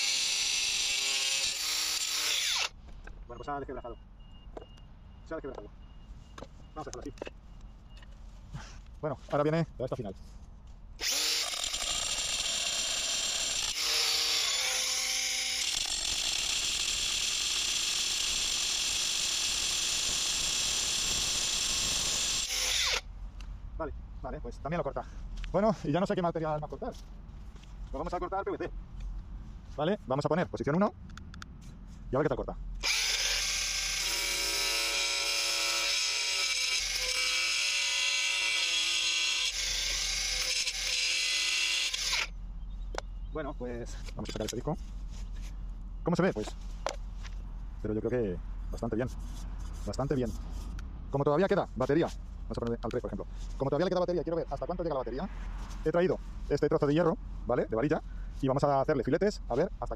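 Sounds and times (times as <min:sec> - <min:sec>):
angle grinder cutting steel: 0:00.0 - 0:02.7, 0:11.0 - 0:23.0, 0:32.8 - 0:42.3.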